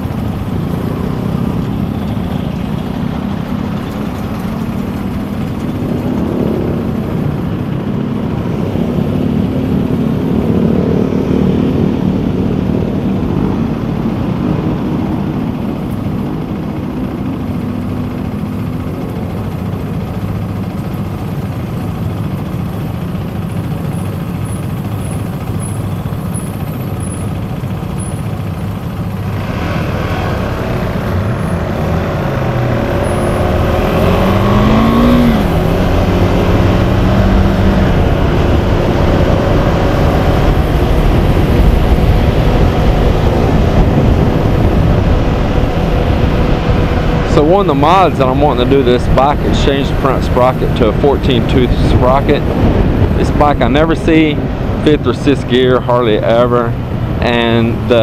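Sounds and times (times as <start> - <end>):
motorcycle engine accelerating: 0.0 - 58.0
wind on microphone: 32.6 - 55.1.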